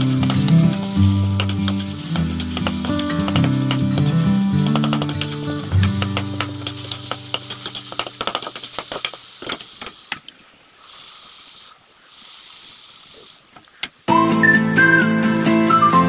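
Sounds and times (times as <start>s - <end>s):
background music: 0.0s - 8.0s, 14.1s - 16.0s
spoon and potatoes knocking on pan: 0.0s - 9.0s
soft sizzling hiss: 0.0s - 14.1s
whistled tune: 14.1s - 16.0s.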